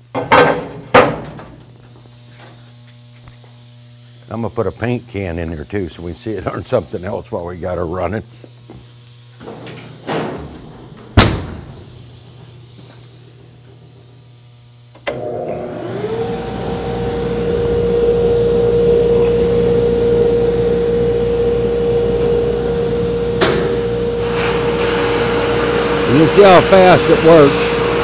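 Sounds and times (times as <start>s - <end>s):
sharp knock: 11.2s - 11.7s
motor whine: 14.9s - 28.0s.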